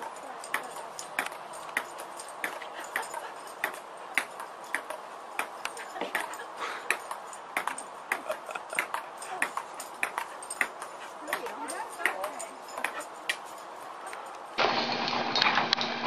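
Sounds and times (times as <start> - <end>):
table tennis ball clicking: 8.8 - 12.2.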